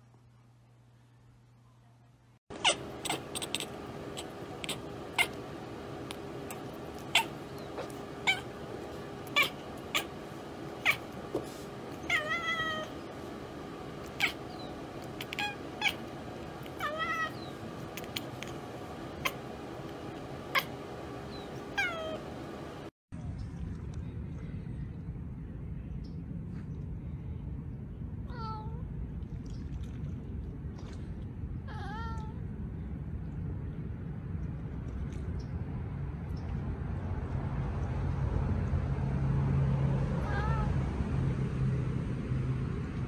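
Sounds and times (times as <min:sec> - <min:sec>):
faint steady hum: 0:00.0 - 0:43.0
cat chattering and chirping: 0:02.5 - 0:11.3, 0:11.9 - 0:13.1, 0:13.9 - 0:22.3.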